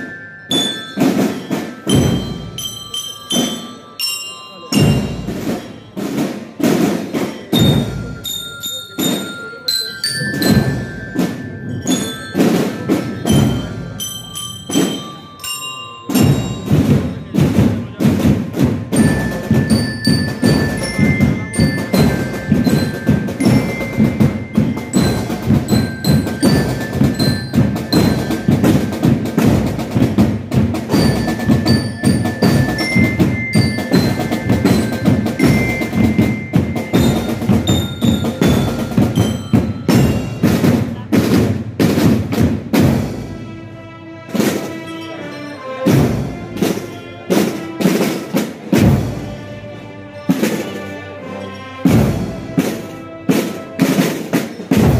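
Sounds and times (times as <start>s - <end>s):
high ringing notes playing a tune: 0.0s - 18.0s, 18.9s - 29.4s, 30.9s - 40.6s, 44.6s - 48.4s.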